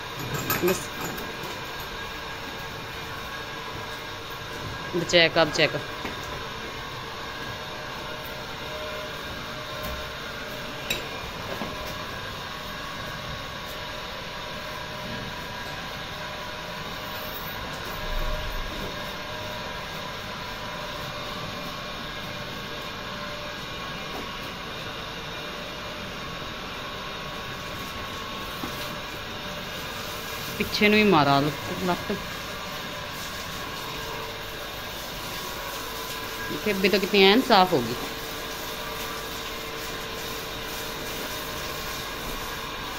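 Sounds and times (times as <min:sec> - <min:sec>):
mechanical hum with hiss: 0:00.0 - 0:42.9
water from hose splashing on concrete: 0:27.2 - 0:42.9.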